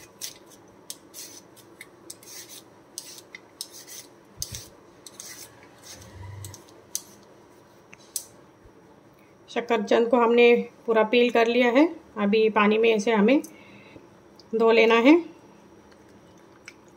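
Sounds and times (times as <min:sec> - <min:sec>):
vegetable peeler scraping skin: 0:00.0 - 0:07.2.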